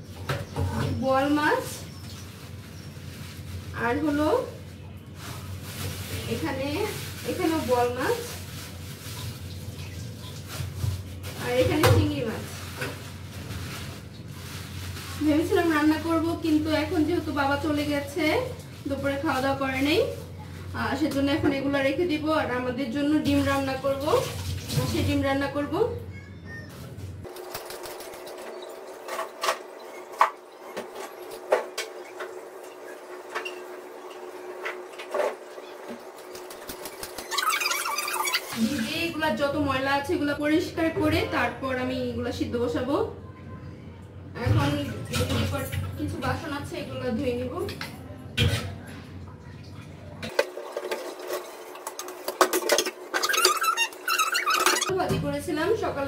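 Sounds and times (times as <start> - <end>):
scrubbing dishes: 27.2 - 39.1, 49.8 - 54.9
dish soap squirt: 36.3 - 38.9.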